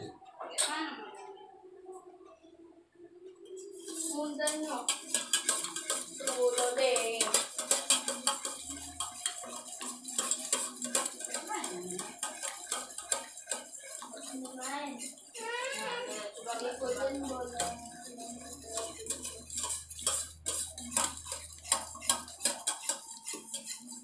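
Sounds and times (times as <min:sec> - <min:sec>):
spoon clinking in metal mug: 0:03.6 - 0:14.1, 0:16.4 - 0:24.0.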